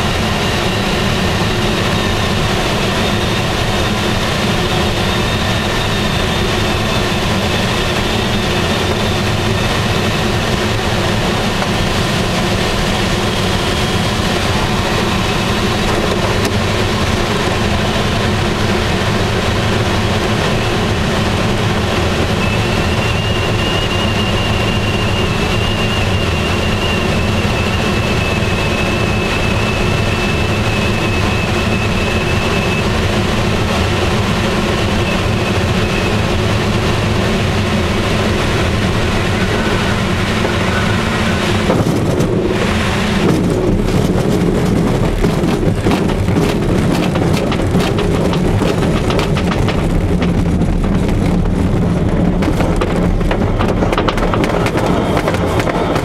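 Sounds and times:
airflow rushing over glider canopy: 0:00.0 - 0:25.4, 0:29.1 - 0:56.0
faint high whistle: 0:22.3 - 0:33.0
wheel and airframe rattling: 0:37.7 - 0:56.0.

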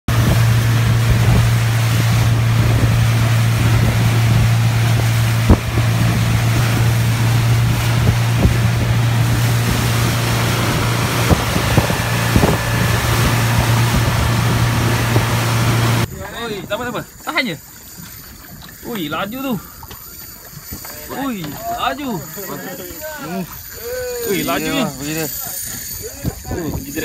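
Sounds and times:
outboard motor running: 0:00.0 - 0:27.0
water rushing past hull: 0:00.0 - 0:27.0
wind on microphone: 0:00.1 - 0:17.2, 0:25.6 - 0:27.0.

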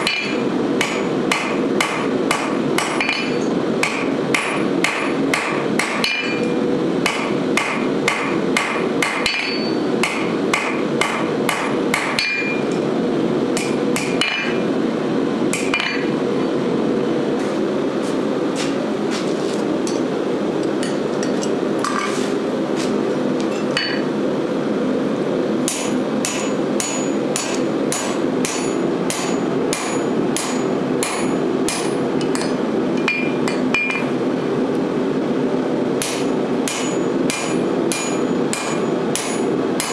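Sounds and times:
hammer striking hot steel on anvil: 0:00.0 - 0:12.9, 0:13.5 - 0:14.7, 0:15.5 - 0:16.2, 0:23.5 - 0:24.1, 0:25.6 - 0:34.1, 0:36.0 - 0:39.9.

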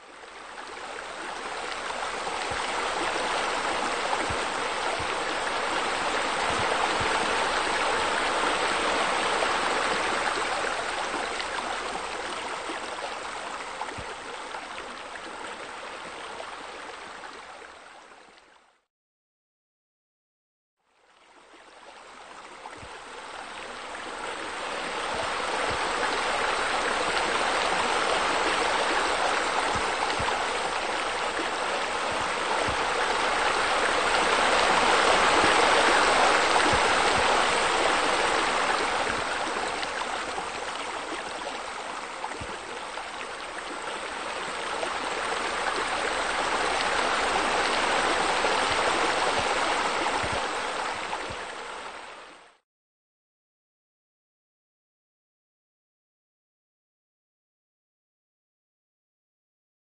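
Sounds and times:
waterfall rushing into pool: 0:00.0 - 0:17.1, 0:23.6 - 0:52.4.

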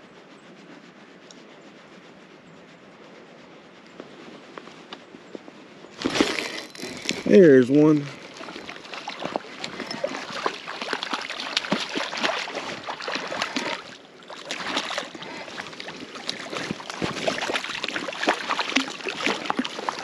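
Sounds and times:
fish splashing in water: 0:06.0 - 0:20.0.

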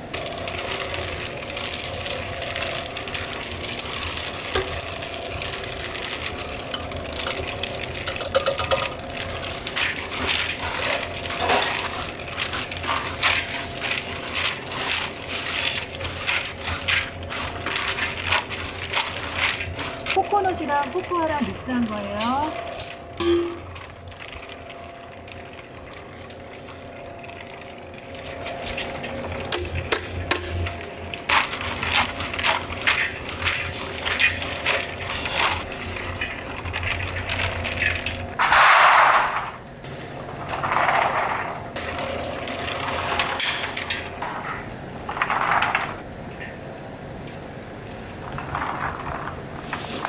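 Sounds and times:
machinery humming: 0:00.0 - 0:38.6.

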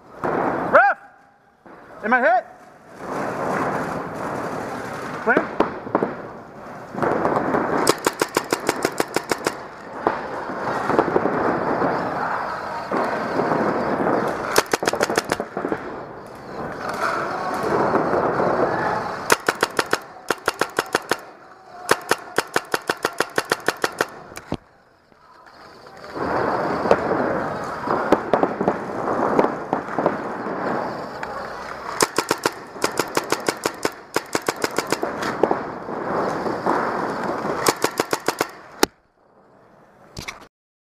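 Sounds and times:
paintball markers firing: 0:07.8 - 0:09.9, 0:14.4 - 0:15.6, 0:19.1 - 0:24.7, 0:31.9 - 0:35.4, 0:37.6 - 0:39.0.

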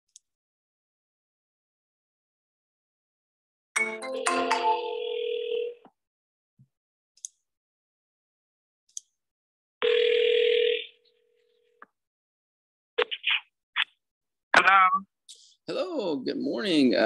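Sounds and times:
telephone ringback tone: 0:04.2 - 0:05.8, 0:09.8 - 0:11.7.

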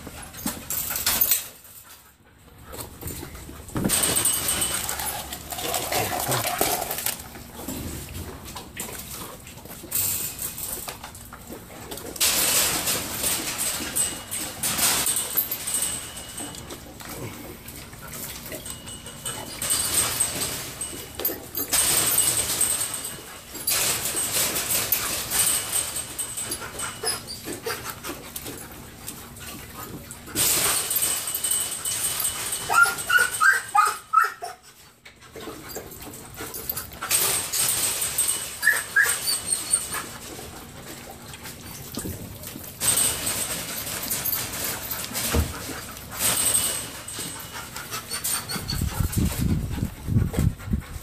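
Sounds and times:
puppies crunching dry kibble: 0:00.0 - 0:51.0
puppy whimpers: 0:32.7 - 0:34.7, 0:38.6 - 0:40.0.

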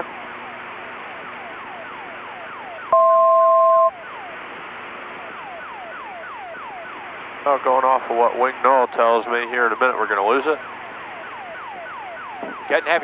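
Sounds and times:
two-tone beep: 0:02.9 - 0:03.9.

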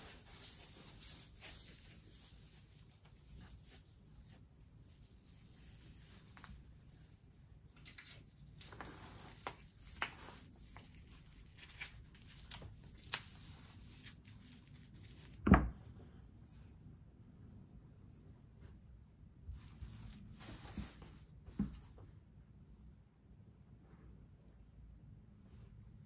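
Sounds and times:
fabric straps rustling: 0:00.0 - 0:06.7, 0:07.8 - 0:15.4.

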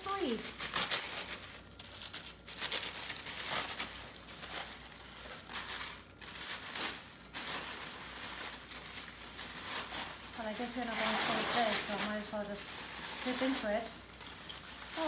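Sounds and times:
tissue paper rustling: 0:00.0 - 0:15.0.

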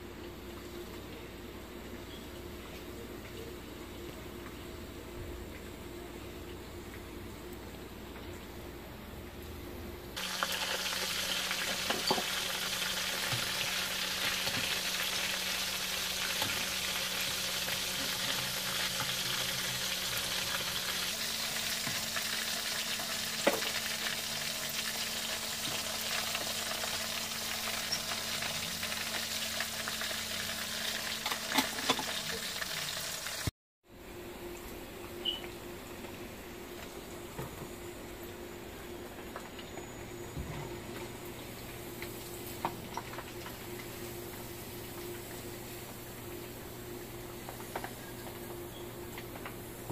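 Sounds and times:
chicken deep-frying in oil: 0:10.2 - 0:33.5, 0:34.4 - 0:49.9.

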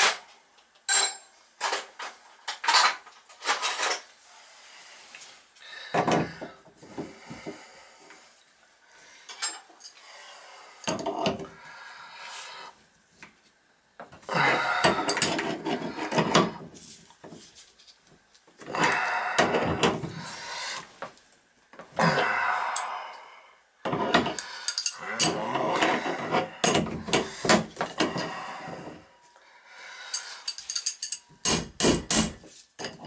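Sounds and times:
wrench scraping metal: 0:14.9 - 0:16.5.

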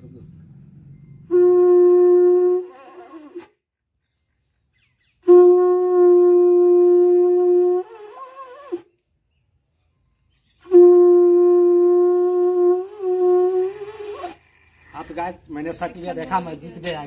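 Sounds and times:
conch shell blasts: 0:01.3 - 0:03.5, 0:05.2 - 0:08.8, 0:10.7 - 0:14.4.

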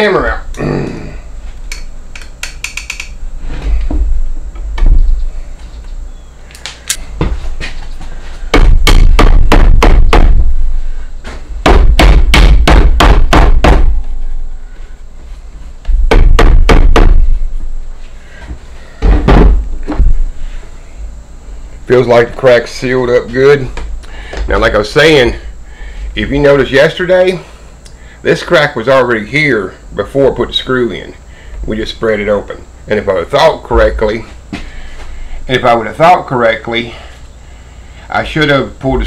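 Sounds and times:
claw hammer striking nails: 0:11.6 - 0:13.9.

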